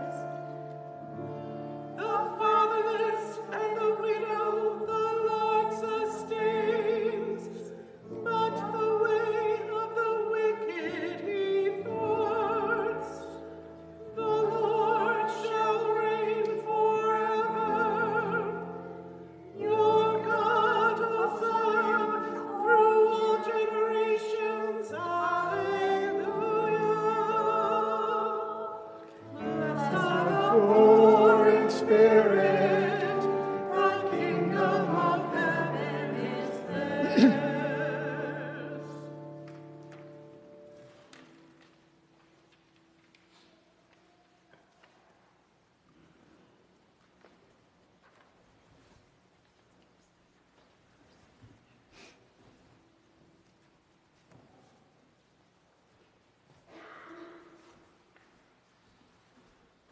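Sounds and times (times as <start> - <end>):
woman singing with vibrato: 19.5 - 39.1.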